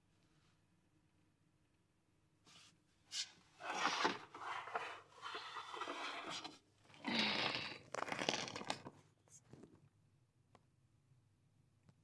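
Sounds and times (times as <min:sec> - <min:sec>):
rustling and scraping on plastic carrier: 0:03.1 - 0:06.6.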